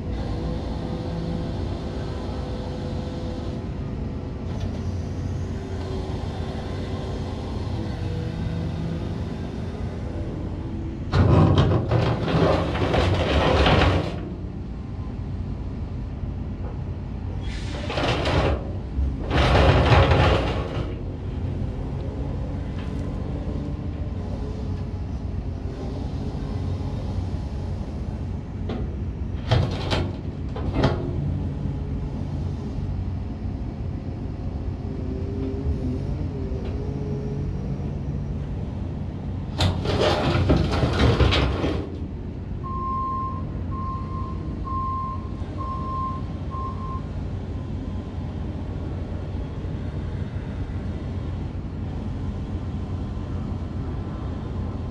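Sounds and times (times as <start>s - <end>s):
hydraulics raising bucket: 11.1s - 14.4s, 39.5s - 42.8s.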